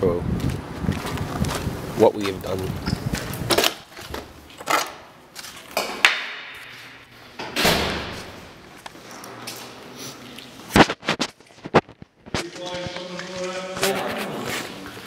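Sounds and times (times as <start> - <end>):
door knocks and clunks: 7.4 - 8.3.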